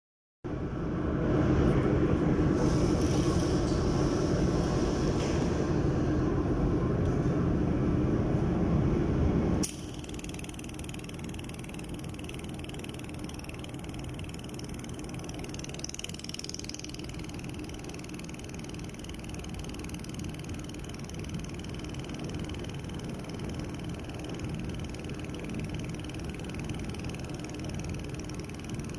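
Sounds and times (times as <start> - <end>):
welding machine rumble: 9.6 - 28.9.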